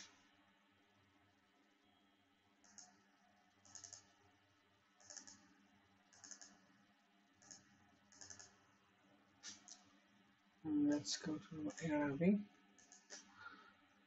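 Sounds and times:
computer mouse clicks: 2.6s - 3.0s, 3.6s - 4.2s, 5.0s - 5.5s, 6.1s - 6.7s, 7.4s - 8.6s, 12.8s - 13.3s.

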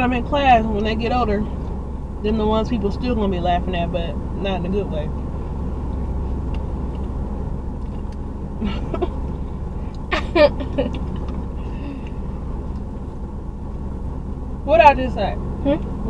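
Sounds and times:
car engine idling: 0.0s - 16.0s
person laughing: 8.6s - 9.2s, 10.1s - 12.0s.

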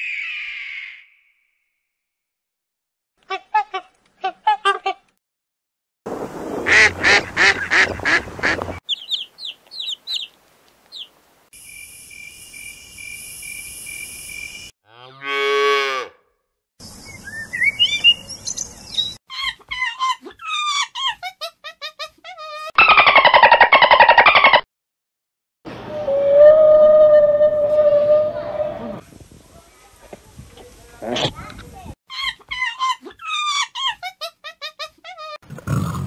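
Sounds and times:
high chirping and squeaking calls: 8.9s - 10.3s, 17.2s - 19.5s.

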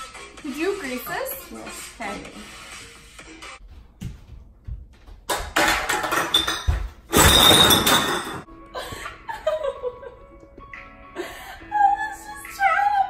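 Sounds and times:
glass bottles and cans clattering: 5.3s - 8.5s.

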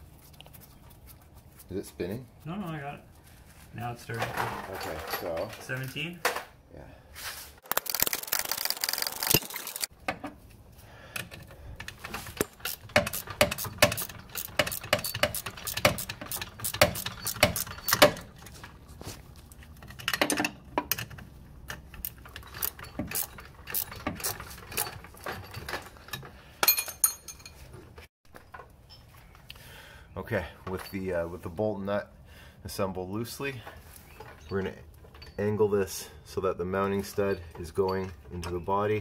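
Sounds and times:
metallic clicks of wrench: 11.2s - 18.2s.

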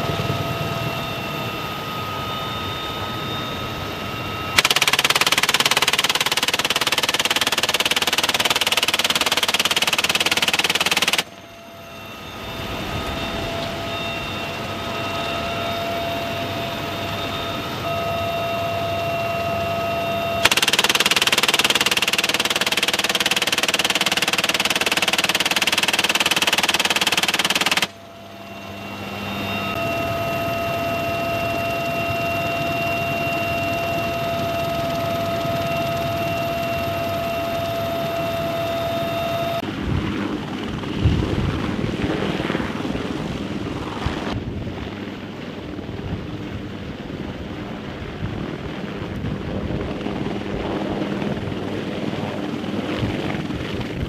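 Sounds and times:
helicopter turbine and rotor: 0.0s - 54.0s
machine gun firing bursts: 4.6s - 11.3s, 20.4s - 28.0s.

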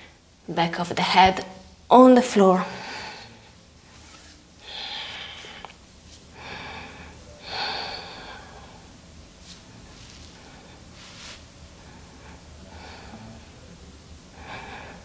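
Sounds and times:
woman breathing slowly: 2.7s - 3.6s, 4.6s - 9.0s, 9.6s - 15.0s.

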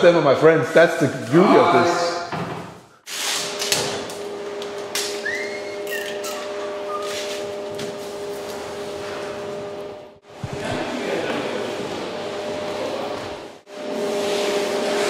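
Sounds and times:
brief squeak: 5.2s - 7.3s.

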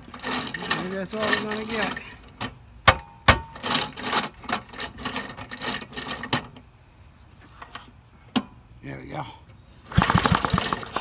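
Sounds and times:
small engine idling unevenly: 9.8s - 11.0s.

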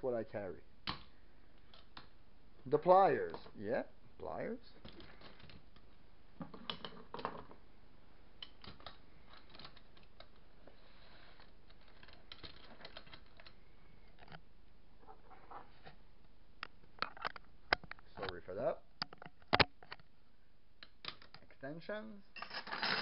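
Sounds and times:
metal tools clinking: 22.4s - 23.0s.

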